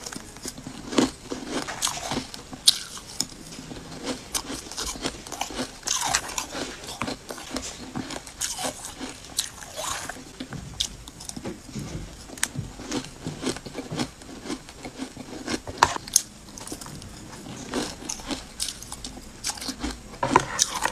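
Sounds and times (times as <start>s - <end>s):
ice crunching while chewed: 0.0s - 20.9s.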